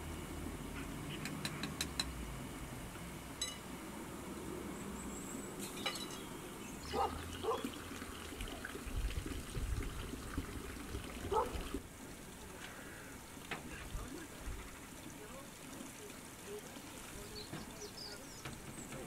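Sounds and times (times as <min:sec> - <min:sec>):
crockery clinking: 0:03.4 - 0:03.6, 0:05.6 - 0:06.3
water pouring and trickling: 0:05.5 - 0:19.0.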